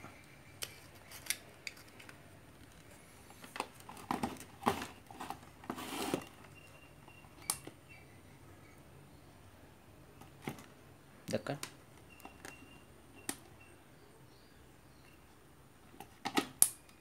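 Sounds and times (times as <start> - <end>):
small tools clicking and scraping: 0.6 - 2.9.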